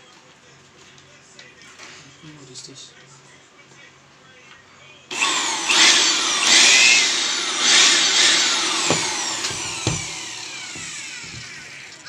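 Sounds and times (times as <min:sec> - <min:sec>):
electric blower motor whine: 0:05.1 - 0:12.0
sharp knocks: 0:08.8 - 0:11.6.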